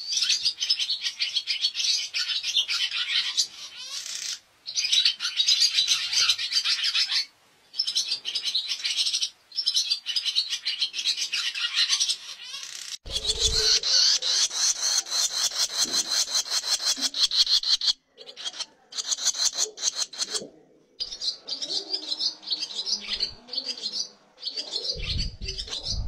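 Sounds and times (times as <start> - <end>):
swallow twittering song: 7.8 - 20.4.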